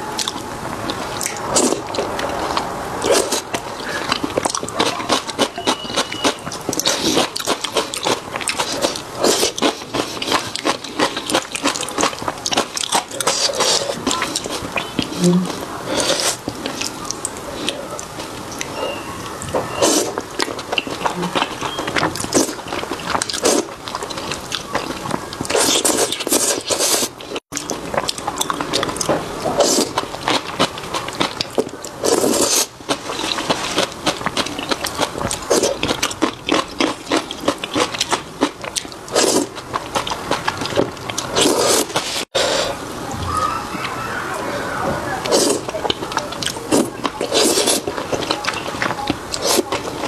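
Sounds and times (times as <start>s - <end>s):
wet chewing: 0.2s - 42.8s, 45.2s - 50.0s
noodle slurping: 1.2s - 16.9s, 18.7s - 27.4s, 29.4s - 30.7s, 31.3s - 38.2s, 39.1s - 42.8s, 45.2s - 48.7s.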